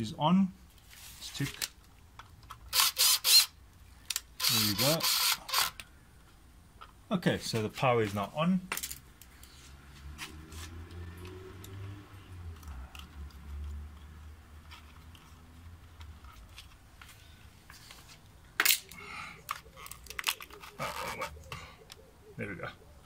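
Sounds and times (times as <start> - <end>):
hands handling plastic housing: 14.6 - 22.0.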